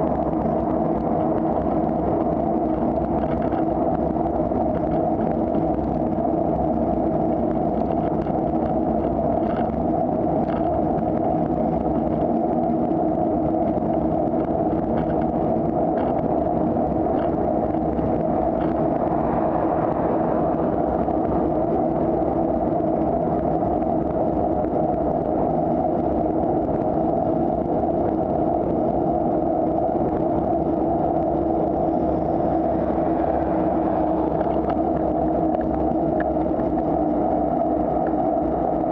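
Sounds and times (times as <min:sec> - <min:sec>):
road rumble: 0:00.0 - 0:38.9
wind rushing on microphone: 0:00.0 - 0:38.9
motor vehicles passing: 0:17.3 - 0:23.2, 0:30.7 - 0:37.5.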